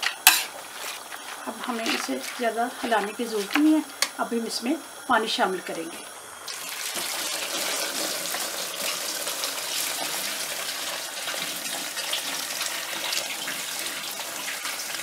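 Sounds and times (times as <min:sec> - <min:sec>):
water pouring into metal pot: 0:06.4 - 0:15.0.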